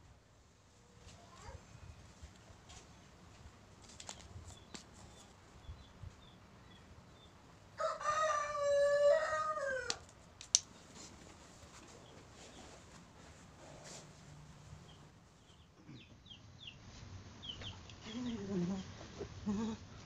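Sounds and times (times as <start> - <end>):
rooster crowing: 7.8 - 10.0.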